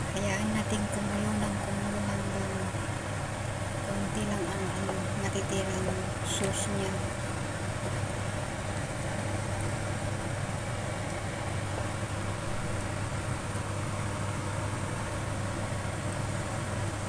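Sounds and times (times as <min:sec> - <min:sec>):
sauce boiling and sizzling in a wok: 0:00.0 - 0:17.0.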